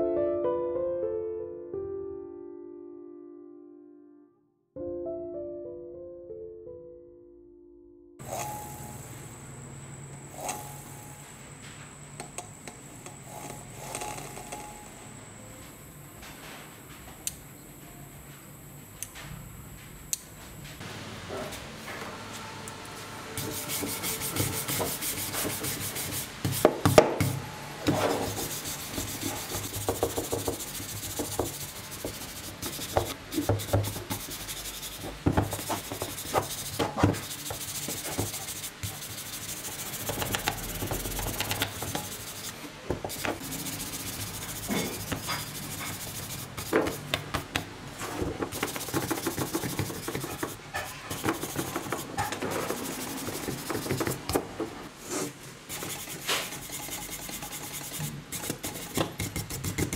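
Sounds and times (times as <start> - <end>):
stiff brush scrubbing metal: 23.4 - 26.7, 27.9 - 47.1, 48.5 - 54.3, 55.1 - 59.9.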